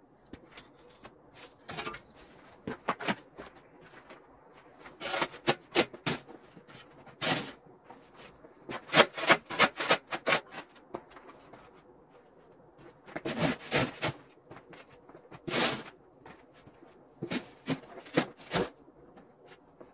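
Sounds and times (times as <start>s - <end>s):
snow shovel scraping snow: 7.1s - 7.6s, 13.2s - 14.2s, 15.4s - 15.9s.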